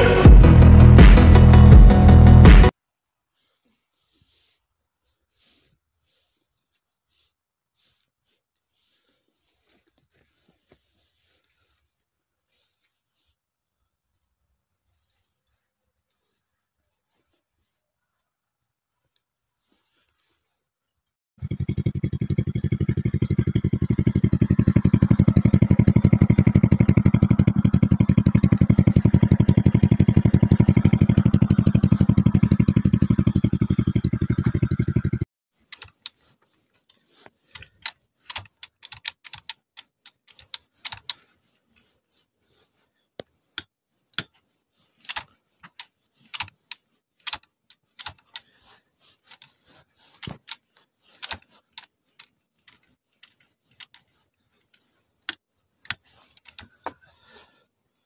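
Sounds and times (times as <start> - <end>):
motorcycle engine puttering: 21.4 - 35.3.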